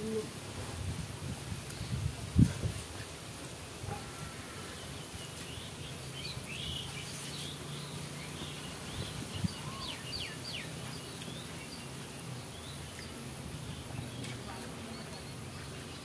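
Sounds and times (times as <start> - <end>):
small birds chirping: 4.6 - 16.0.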